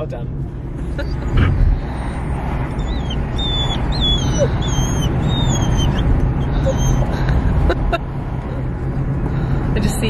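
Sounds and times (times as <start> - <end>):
car low rumble: 0.0 - 10.0
dog whimpering: 1.0 - 7.2.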